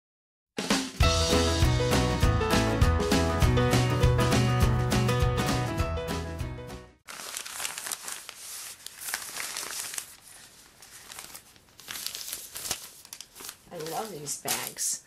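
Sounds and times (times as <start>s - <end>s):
background music: 0.6s - 7.0s
packaging crinkling and rustling: 7.1s - 14.9s.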